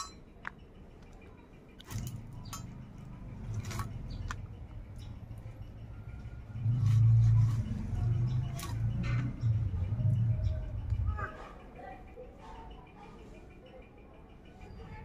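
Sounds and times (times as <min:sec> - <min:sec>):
low engine rumble: 0:00.5 - 0:14.2.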